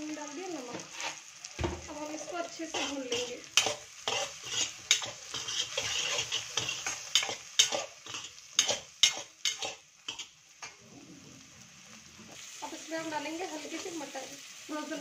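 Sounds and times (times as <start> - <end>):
light sizzle of frying: 0.0 - 15.0
spatula scraping a pan: 0.7 - 1.3, 1.9 - 10.8.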